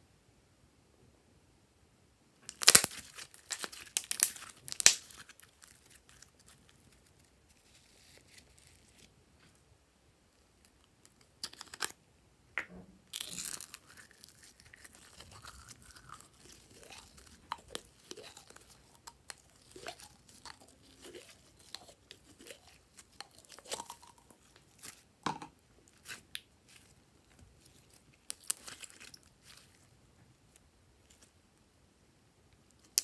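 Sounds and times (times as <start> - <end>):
slime crackling and tearing: 2.4 - 9.1, 13.1 - 25.0, 27.6 - 29.8.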